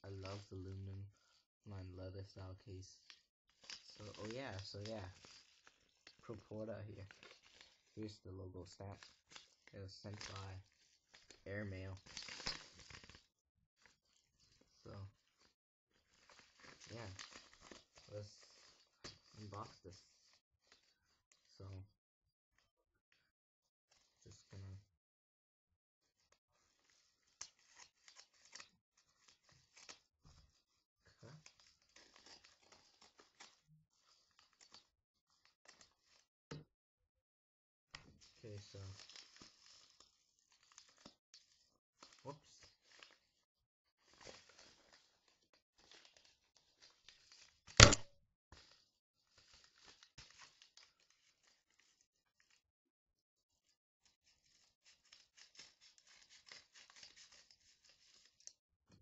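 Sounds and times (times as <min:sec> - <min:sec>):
paper crinkling: 0:00.1 - 0:00.5, 0:03.0 - 0:08.0, 0:08.8 - 0:21.8, 0:26.1 - 0:36.3, 0:38.0 - 0:48.0, 0:48.6 - 0:52.6, 0:53.4 - 0:58.6
loud short noise: 0:47.8 - 0:48.0.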